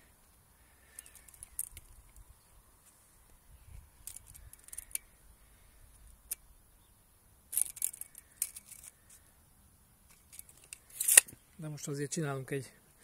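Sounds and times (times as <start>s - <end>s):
metal tape measure clicking: 4.0s - 5.0s, 7.5s - 9.0s, 10.1s - 11.4s.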